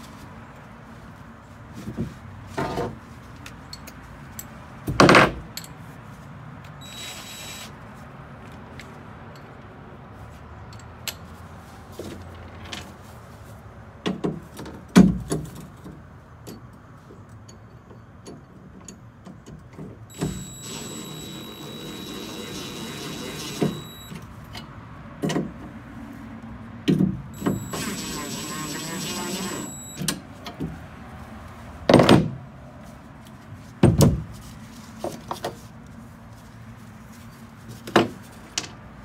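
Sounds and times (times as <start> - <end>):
cordless driver whining: 6.8 - 7.7, 20.1 - 24.2, 27.4 - 30.2.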